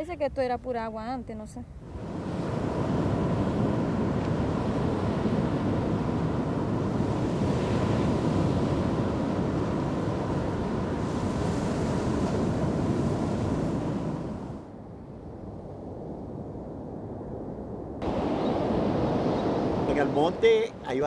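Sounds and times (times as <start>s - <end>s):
wind buffeting microphone: 1.7s - 21.0s
sea surf breaking on beach: 1.8s - 14.7s, 18.0s - 21.0s.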